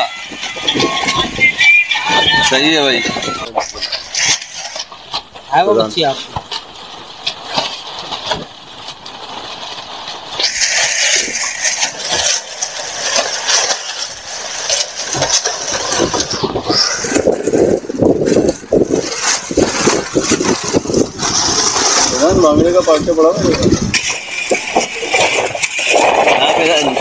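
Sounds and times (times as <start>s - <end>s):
wind buffeting microphone: 0.0s - 3.9s, 15.1s - 27.0s.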